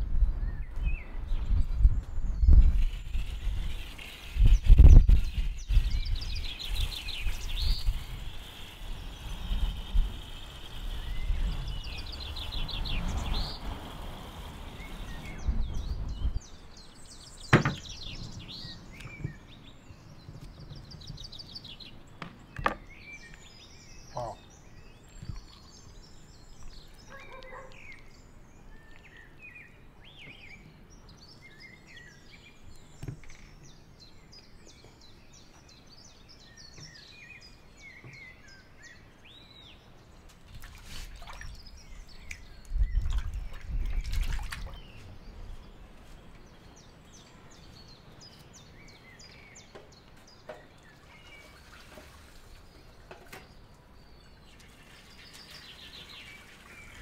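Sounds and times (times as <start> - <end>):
small birds chirping: 0.0 - 57.0
water splashing and sloshing: 40.3 - 45.2, 50.9 - 53.5.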